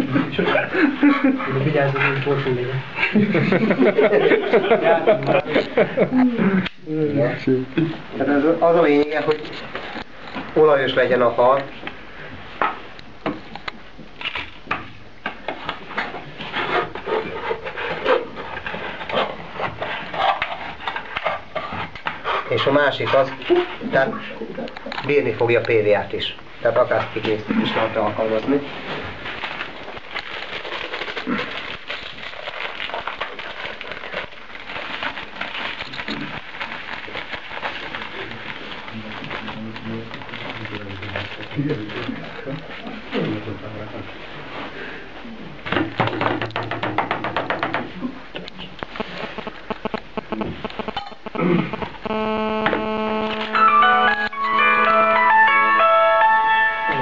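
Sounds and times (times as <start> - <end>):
plastic bag crinkling: 29.2 - 42.3.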